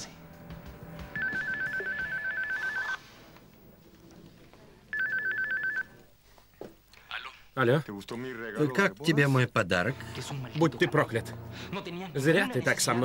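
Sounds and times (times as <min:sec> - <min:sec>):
telephone ringing with warbling trill: 0:01.2 - 0:03.0, 0:04.9 - 0:05.9.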